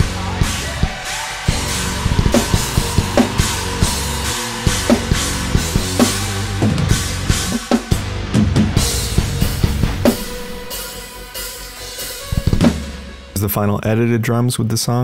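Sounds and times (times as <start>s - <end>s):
sustained guitar and bass: 0.0s - 10.8s
heavy metal drums: 0.0s - 13.5s.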